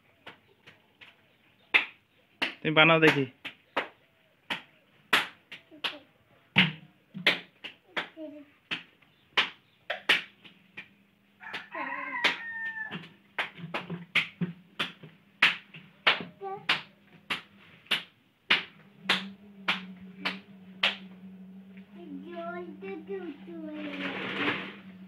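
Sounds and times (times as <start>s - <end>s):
sharp knocks or slaps: 1.7s - 6.0s, 6.6s - 10.9s, 12.2s - 21.0s
rooster crowing: 11.4s - 13.0s
low steady hum: 13.9s - 25.0s.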